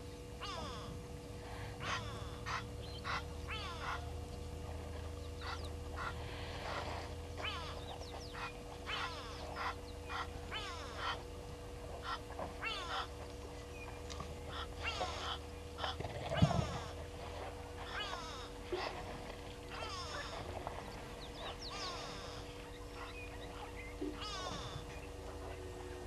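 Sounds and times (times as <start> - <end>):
birds calling: 0.0 - 26.0
steady low hum: 0.0 - 26.0.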